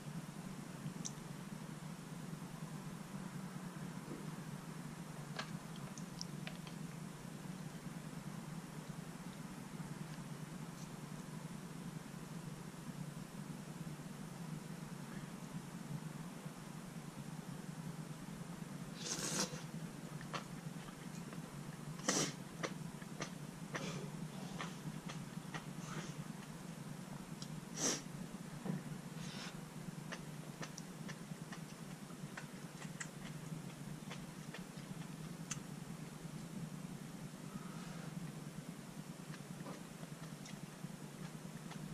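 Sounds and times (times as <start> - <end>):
steady low hum: 0.0 - 41.9
chewing with wet smacks: 20.1 - 21.9, 22.6 - 25.8, 30.1 - 35.6, 39.2 - 41.9.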